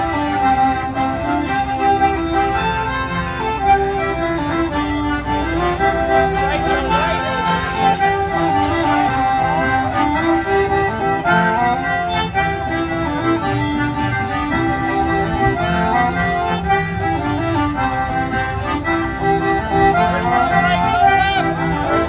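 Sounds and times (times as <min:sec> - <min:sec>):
folk band playing dance tune: 0:00.0 - 0:22.0.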